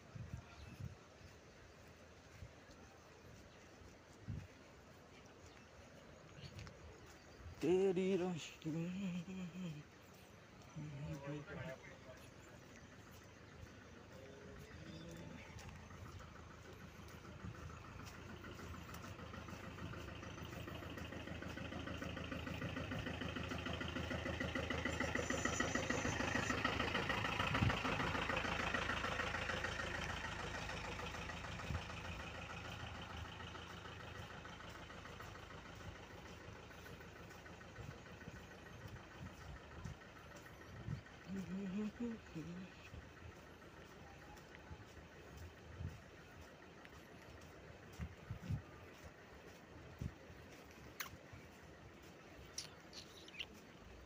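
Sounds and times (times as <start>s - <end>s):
truck engine running: 0.0s - 54.0s.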